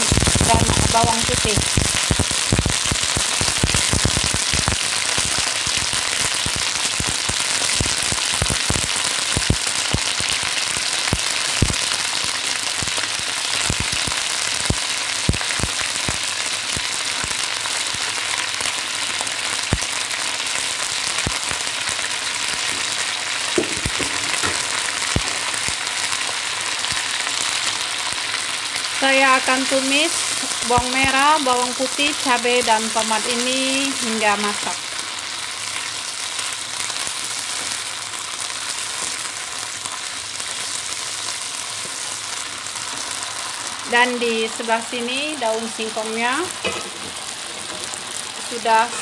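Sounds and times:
vegetables frying in oil: 0.0 - 49.0.

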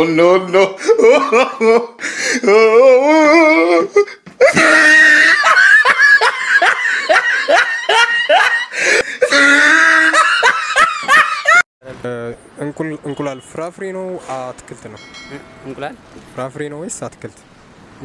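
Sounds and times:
person laughing loudly: 0.5 - 11.6.

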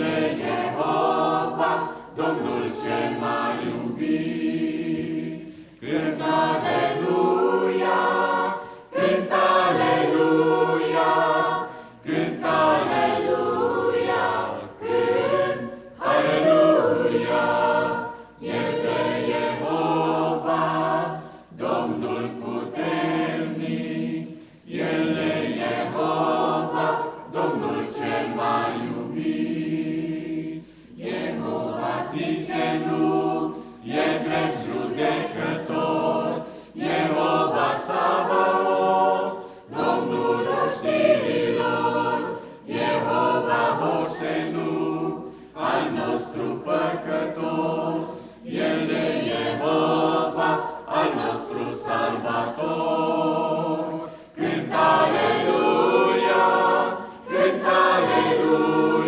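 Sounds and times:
mixed choir singing a hymn: 0.0 - 59.0
singers breathing: 5.4 - 5.8, 11.7 - 12.0, 21.2 - 21.5, 24.3 - 24.7, 30.6 - 31.0, 36.4 - 36.8, 39.4 - 39.7, 45.2 - 45.6, 48.1 - 48.5, 54.0 - 54.4.

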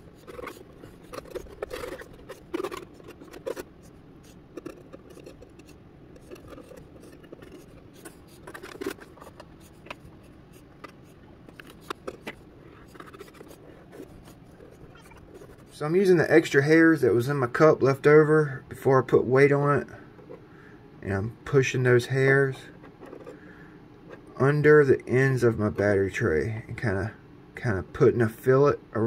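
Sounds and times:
metal pick scraping and clicking: 0.0 - 15.6.

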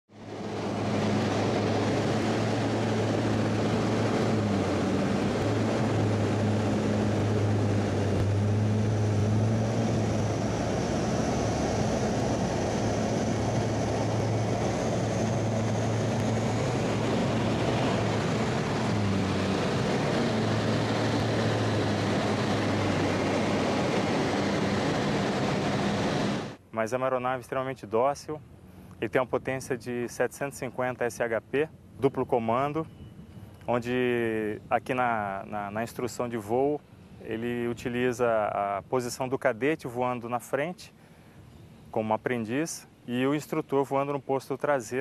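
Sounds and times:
propeller plane engine drone: 0.1 - 45.0
rushing air: 0.2 - 26.6
faint high whine: 0.2 - 45.0.

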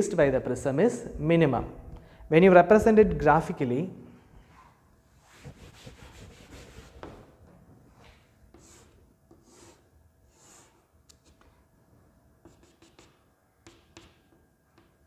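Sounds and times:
chalk scraping on chalkboard: 5.2 - 7.2, 8.5 - 11.5, 12.4 - 14.2
chalk tapping on chalkboard: 5.3 - 7.3, 8.5 - 11.5, 12.4 - 15.0.

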